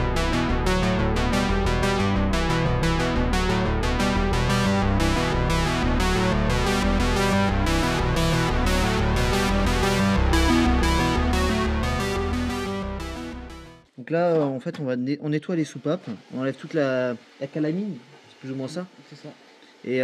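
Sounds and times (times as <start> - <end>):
synthesizer keyboard music: 0.0 - 13.9.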